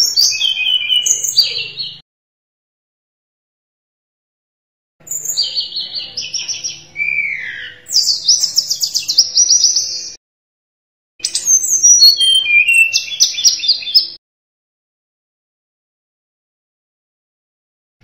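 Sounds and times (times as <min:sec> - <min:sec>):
bird singing trilled phrases: 0:00.0 - 0:02.0, 0:05.0 - 0:10.2, 0:11.2 - 0:14.2.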